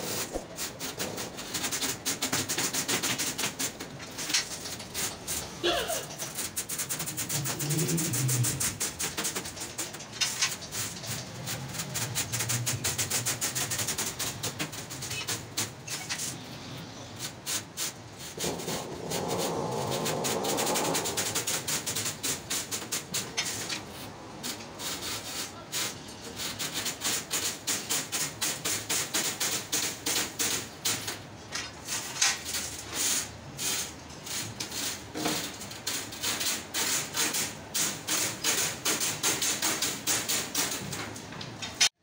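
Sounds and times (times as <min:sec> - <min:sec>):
steel wires rattling against mesh: 0:00.0 - 0:16.4, 0:26.1 - 0:41.9.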